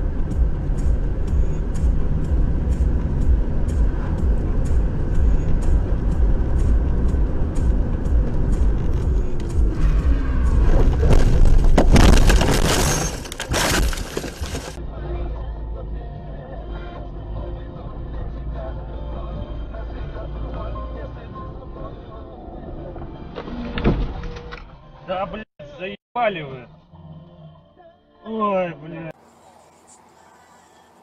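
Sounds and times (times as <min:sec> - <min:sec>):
road and engine rumble: 0:00.0 - 0:24.6, 0:29.1 - 0:31.0
car crashing through brush: 0:10.6 - 0:14.8.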